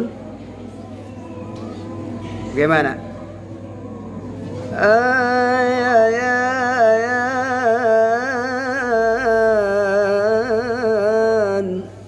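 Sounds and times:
person chanting recitation: 0:04.5 - 0:12.0.

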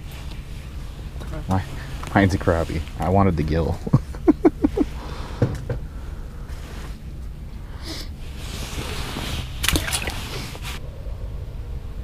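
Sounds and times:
low steady hum: 0:00.0 - 0:12.0
person chuckling: 0:03.8 - 0:05.1.

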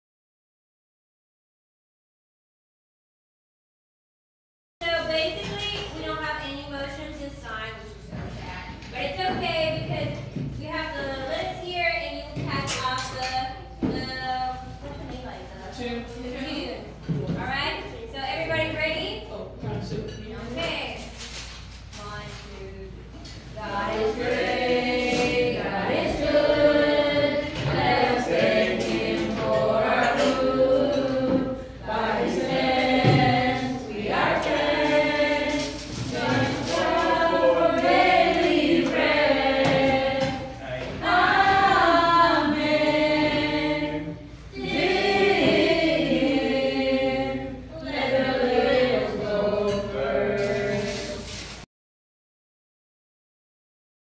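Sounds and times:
group singing without instruments: 0:23.5 - 0:51.4.

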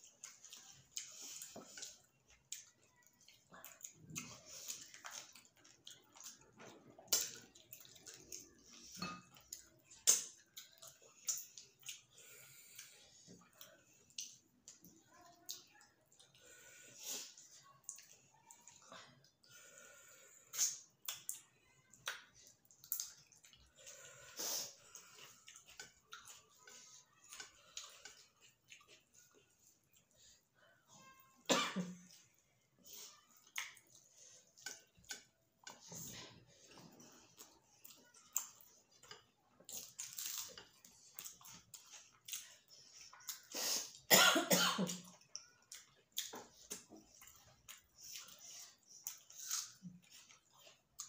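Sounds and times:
chewing: 0:00.0 - 0:44.1, 0:44.8 - 0:51.0
people eating with wet mouth sounds: 0:00.0 - 0:51.0
lip smacks: 0:10.0 - 0:12.1
person coughing: 0:31.5 - 0:32.0, 0:44.1 - 0:45.0.

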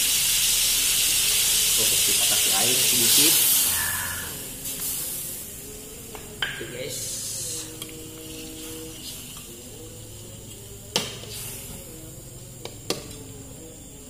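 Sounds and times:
meat sizzling in wok: 0:00.0 - 0:11.9.

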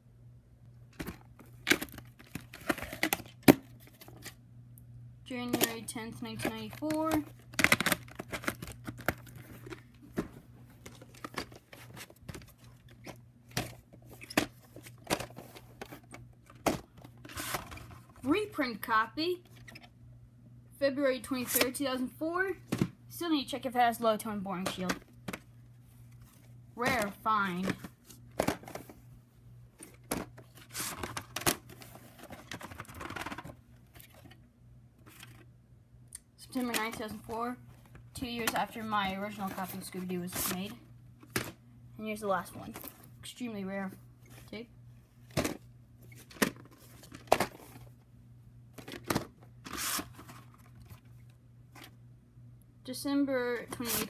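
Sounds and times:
rustling and crinkling: 0:05.4 - 0:18.3, 0:24.6 - 0:34.4, 0:35.0 - 0:35.5, 0:36.5 - 0:41.6, 0:43.8 - 0:48.1, 0:48.7 - 0:52.0
plastic cases clicking and knocking: 0:06.4 - 0:17.8, 0:26.8 - 0:28.9, 0:29.8 - 0:34.4.

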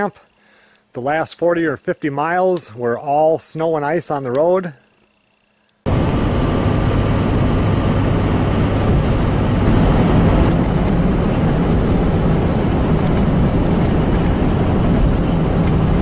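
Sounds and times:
low hum: 0:05.5 - 0:16.0
vehicle engine and tyre noise: 0:05.9 - 0:16.0.

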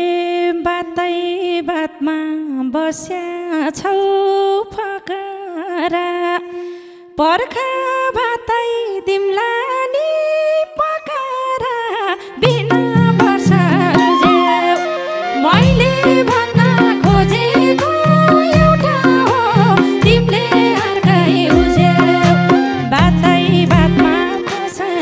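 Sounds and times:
person singing folk melody: 0:07.2 - 0:25.0.

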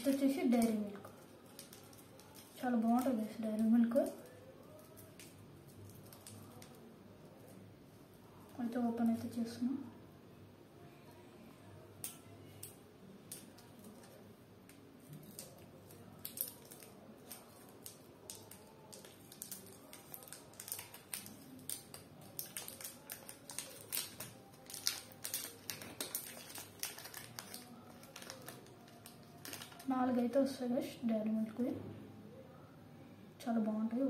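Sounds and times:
plastic wrapper crinkling: 0:00.0 - 0:07.6, 0:12.0 - 0:30.4.

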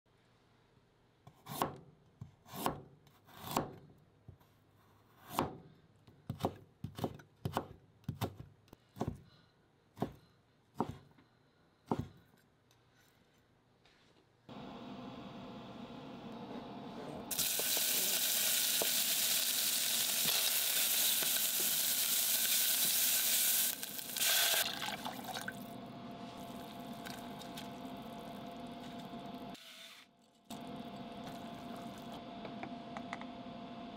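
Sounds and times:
knife chopping on plastic board: 0:06.3 - 0:09.2, 0:11.8 - 0:12.2
food sizzling in oil: 0:17.3 - 0:25.5
water pouring into hot pot: 0:24.2 - 0:25.7.

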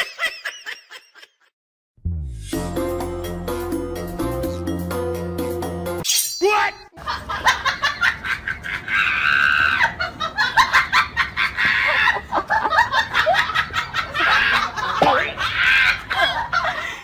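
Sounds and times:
high-pitched excited vocal sounds: 0:06.4 - 0:07.0.

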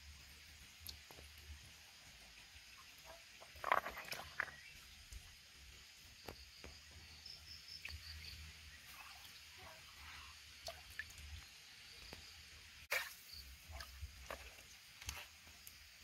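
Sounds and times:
hands splashing in stream water: 0:12.9 - 0:15.5.

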